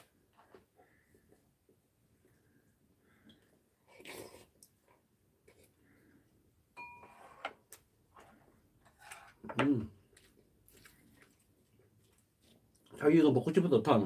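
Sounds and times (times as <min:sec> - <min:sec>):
chewing: 0:10.1 - 0:13.0.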